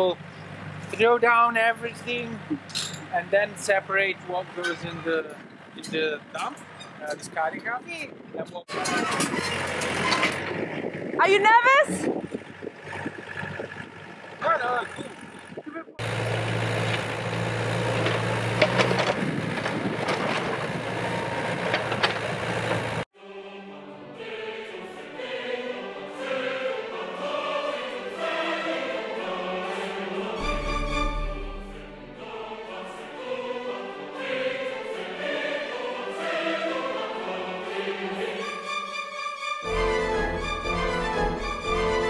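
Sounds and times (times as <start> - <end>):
excavator diesel engine running: 0.0 - 6.8, 11.9 - 23.1, 39.7 - 42.0
demolition knocks: 17.9 - 22.5
choir singing with instruments: 23.2 - 42.0.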